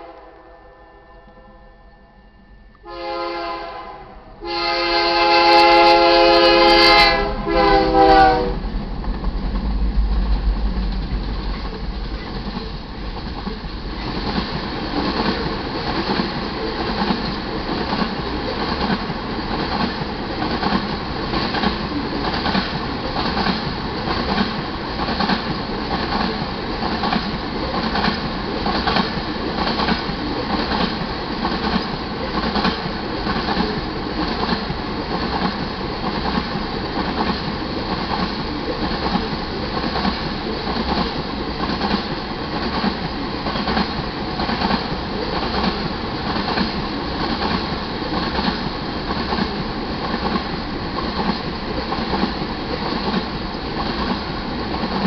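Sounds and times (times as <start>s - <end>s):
locomotive horn blasts: 2.8s - 8.6s
locomotives rumbling past: 6.8s - 43.0s.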